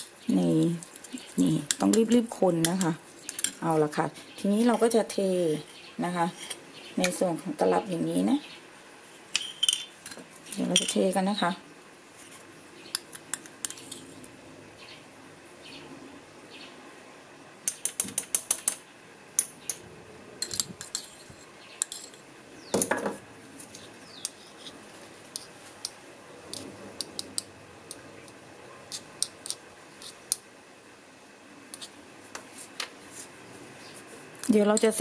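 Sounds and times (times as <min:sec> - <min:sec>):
metal spoon scraping tin: 0:20.4 - 0:22.2.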